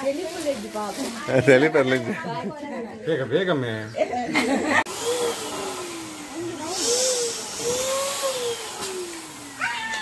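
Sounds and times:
small electric motor blowing air: 4.8s - 10.0s.

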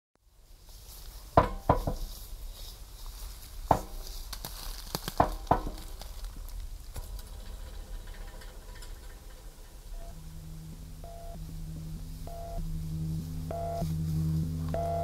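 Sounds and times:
low hum: 5.4s - 15.0s.

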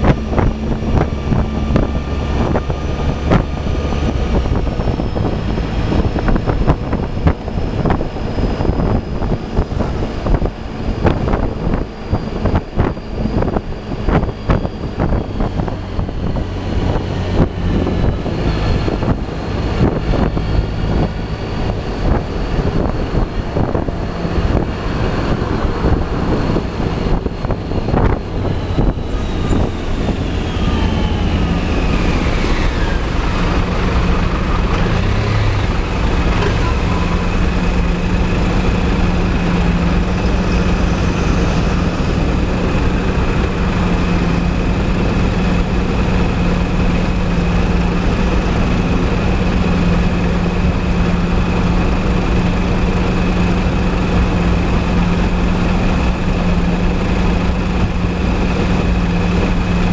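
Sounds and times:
wind buffeting on microphone: 0.0s - 59.9s
scooter engine running: 22.5s - 59.9s.

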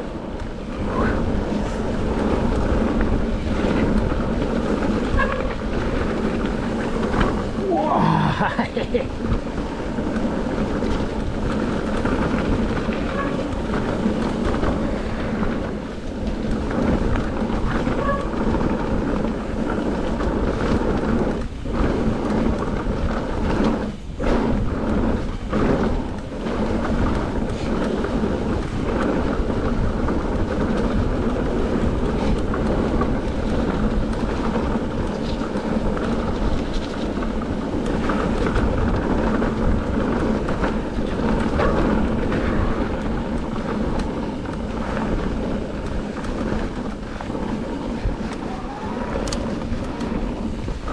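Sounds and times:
bike tyres rumbling on gravel: 0.0s - 50.9s
wind buffeting microphone: 0.0s - 50.9s.

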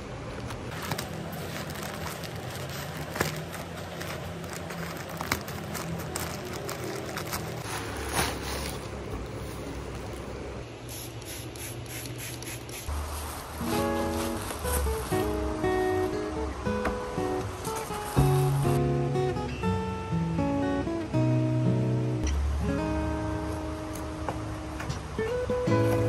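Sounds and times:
plastic mailer bag crinkling: 0.4s - 9.4s, 12.9s - 15.4s.

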